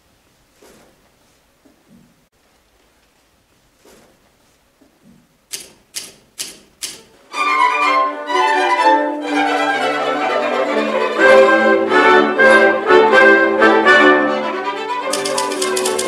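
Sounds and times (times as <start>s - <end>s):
typewriter key strikes: 5.5s - 7.1s, 15.1s - 16.0s
orchestral strings brisk tune: 7.3s - 16.0s.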